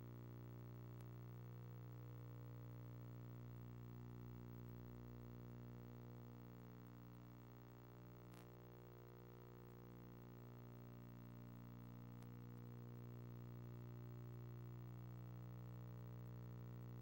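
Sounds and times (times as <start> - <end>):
faint click: 8.3 - 8.5, 12.2 - 12.4.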